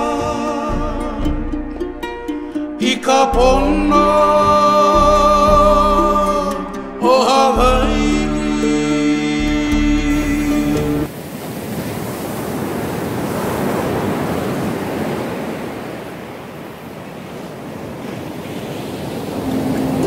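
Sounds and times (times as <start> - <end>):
chanted song: 2.8 - 11.1, 19.4 - 20.0
ocean surf on beach: 10.1 - 20.0.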